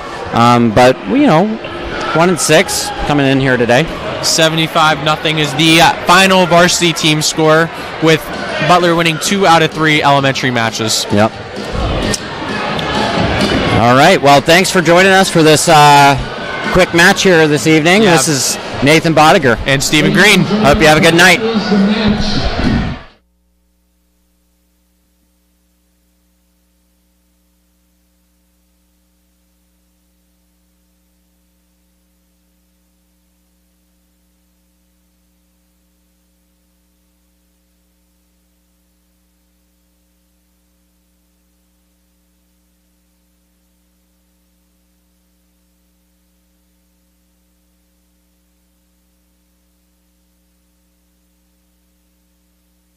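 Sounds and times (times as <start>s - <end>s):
faint electrical hum with hiss: 23.2s - 52.9s.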